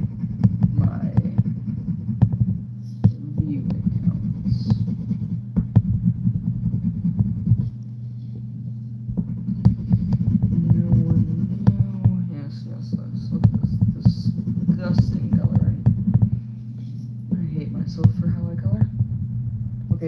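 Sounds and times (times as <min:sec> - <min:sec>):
marker scribbling on paper: 0:00.0 - 0:07.8, 0:09.1 - 0:18.6
steady low hum: 0:00.0 - 0:20.0.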